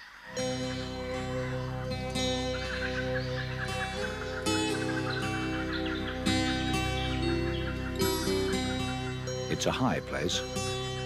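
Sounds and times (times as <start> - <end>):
music of sustained chords: 0.0 - 11.0
faint bird calls: 1.4 - 9.3.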